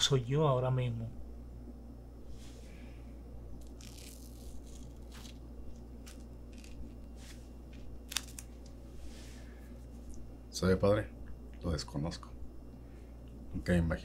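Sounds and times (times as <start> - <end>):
low hum: 0.0 - 14.0
tape tearing off: 3.6 - 7.1, 7.8 - 8.7.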